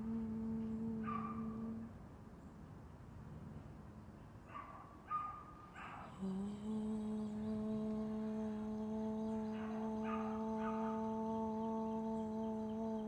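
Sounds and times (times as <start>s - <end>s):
woman chanting om: 0.0s - 2.0s, 6.1s - 13.0s.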